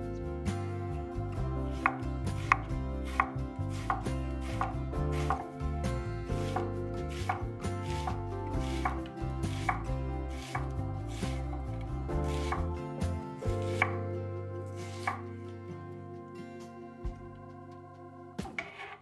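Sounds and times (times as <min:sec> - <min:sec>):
onion crunching: 0:01.7 - 0:12.8.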